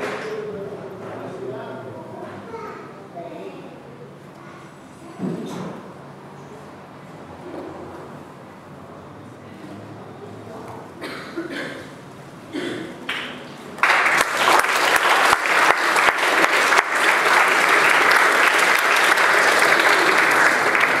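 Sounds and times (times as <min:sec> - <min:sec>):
audience applauding: 0:13.1 - 0:21.0.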